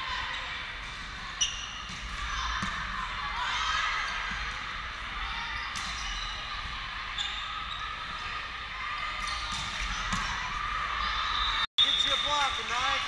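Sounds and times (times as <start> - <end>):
gymnasium background noise: 0.0 - 13.0
volleyball hits: 0.8 - 3.2, 9.1 - 10.8.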